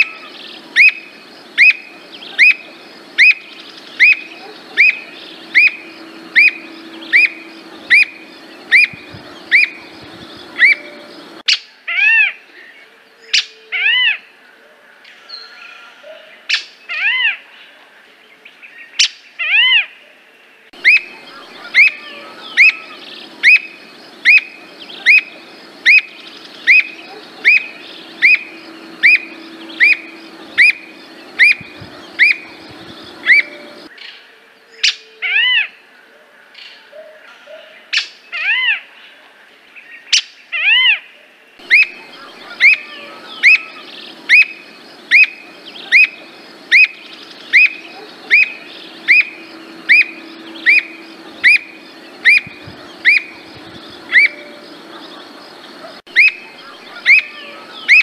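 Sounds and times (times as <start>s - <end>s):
bird calling sharp notes: 0.0s - 11.4s, 20.8s - 33.9s, 41.6s - 58.0s.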